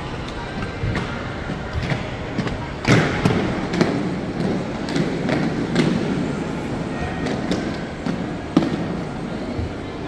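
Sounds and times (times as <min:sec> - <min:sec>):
background chatter: 0:00.0 - 0:10.0
roller skate wheels rumbling: 0:00.0 - 0:10.0.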